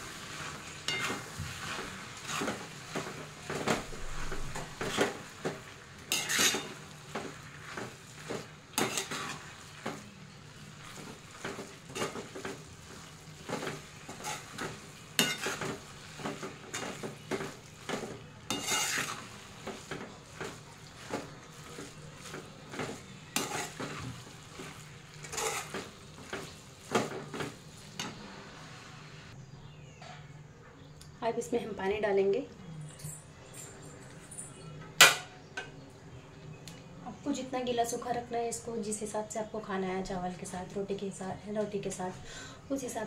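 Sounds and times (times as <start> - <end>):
metal spatula scraping pan: 0.0 - 10.1, 10.8 - 28.2.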